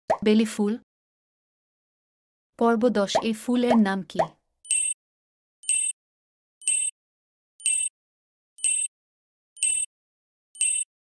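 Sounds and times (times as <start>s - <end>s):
short high-pitched timer tone: 4.7s - 5.0s, 5.6s - 6.0s, 8.6s - 8.9s, 10.6s - 10.9s.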